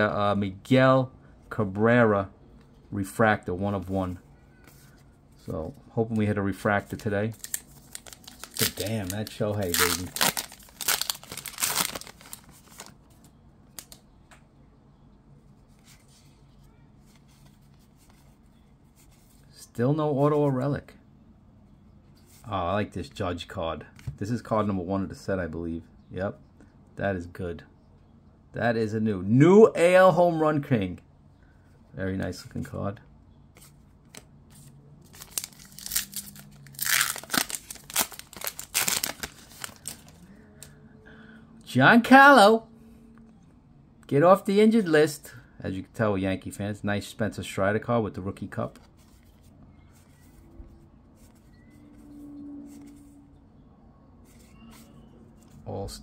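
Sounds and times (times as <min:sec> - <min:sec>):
cards clicking and rustling: 0:06.8 - 0:14.0, 0:33.6 - 0:40.2
wrapper crinkling and tearing: 0:07.3 - 0:13.0, 0:35.1 - 0:40.2.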